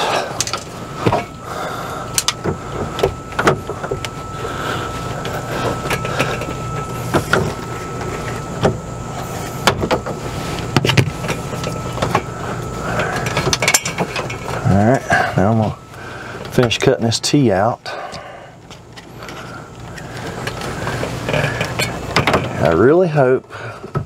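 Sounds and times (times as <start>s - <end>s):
faint high whine: 0.0s - 24.0s
steady low hum: 0.0s - 24.0s
clicks and knocks of hands working: 2.1s - 4.2s.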